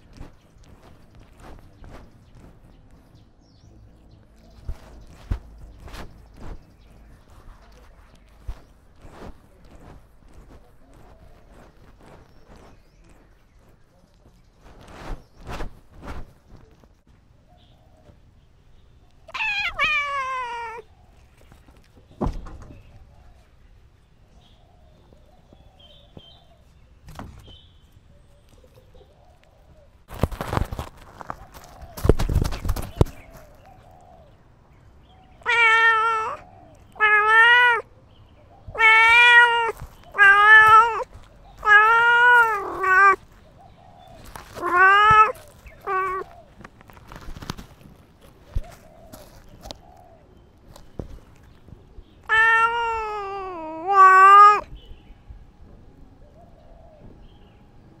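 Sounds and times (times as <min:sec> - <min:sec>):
cat meowing: 0:19.3 - 0:20.9, 0:35.4 - 0:37.9, 0:38.7 - 0:43.3, 0:44.3 - 0:46.4, 0:52.2 - 0:54.8.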